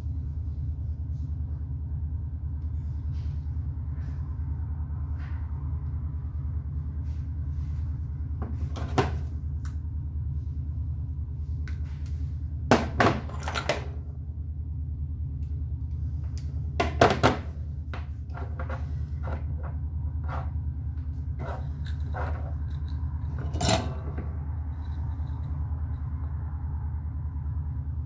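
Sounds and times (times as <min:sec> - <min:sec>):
steady low hum: 0:00.0 - 0:28.0.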